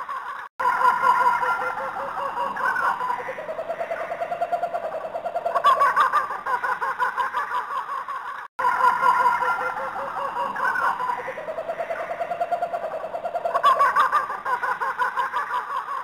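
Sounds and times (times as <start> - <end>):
pulsing bird-like animal cries: 0.6 - 6.8, 8.6 - 15.2.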